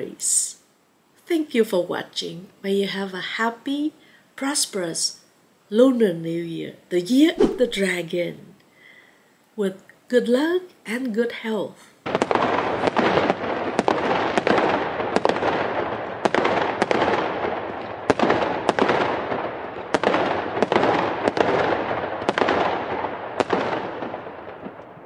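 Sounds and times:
firecrackers crackling: 12.0s - 25.0s.

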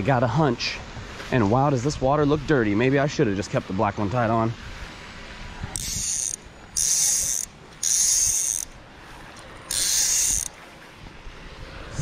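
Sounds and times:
fly reel drag buzzing: 5.7s - 10.7s.

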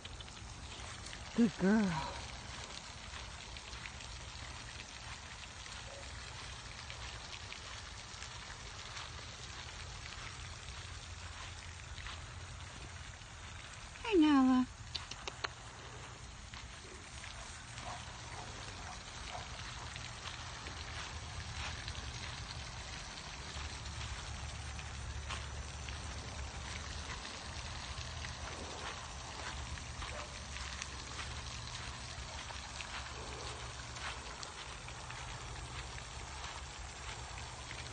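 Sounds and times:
footsteps through grass: 15.8s - 37.9s.

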